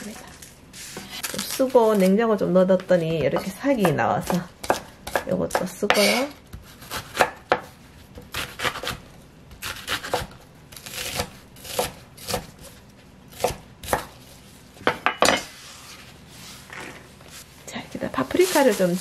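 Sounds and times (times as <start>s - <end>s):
knife chopping on wooden board: 3.2s - 12.5s, 13.3s - 14.2s
rustle of onion scooped by hand: 15.5s - 19.0s.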